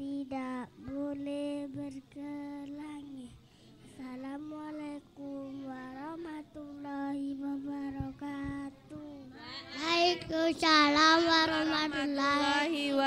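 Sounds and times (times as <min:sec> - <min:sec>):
child singing into microphone: 0:05.6 - 0:09.2.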